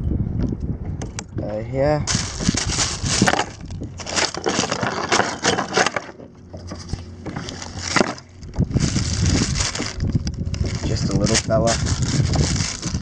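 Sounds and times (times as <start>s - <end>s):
plastic bag crinkling: 2.1s - 6.3s, 7.4s - 13.0s.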